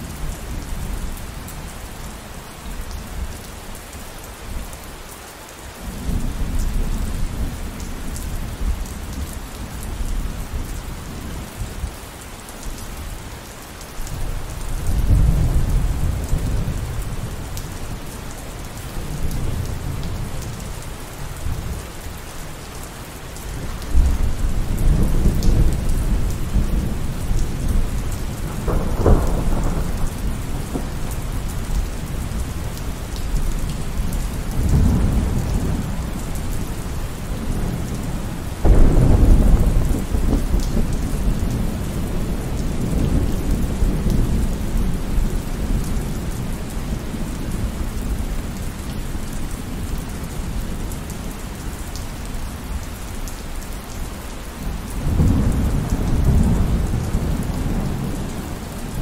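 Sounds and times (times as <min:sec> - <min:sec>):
steady rain: 0:00.0 - 0:59.0
thunder rumbling: 0:23.8 - 0:33.2, 0:34.0 - 0:45.1, 0:54.6 - 0:59.0.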